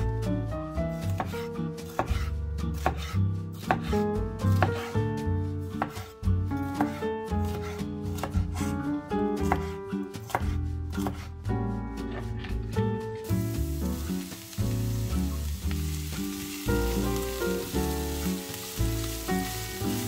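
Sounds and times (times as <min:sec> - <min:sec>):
background music: 0:00.0 - 0:20.0
knife chopping on wooden board: 0:01.0 - 0:05.0, 0:05.8 - 0:08.8, 0:09.4 - 0:11.3.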